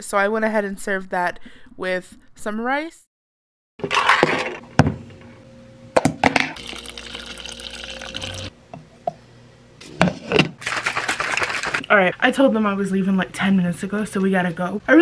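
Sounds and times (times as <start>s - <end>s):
water running into bottle: 6.6s - 8.5s
powder scoop clatter: 10.6s - 11.9s.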